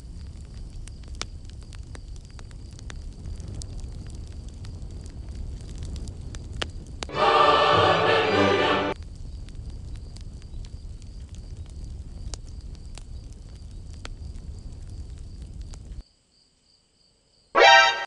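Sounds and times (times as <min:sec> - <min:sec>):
choir music sting: 0:07.1 - 0:09.0, 0:17.6 - 0:18.0
brief loud pitched sound: 0:17.6 - 0:18.0.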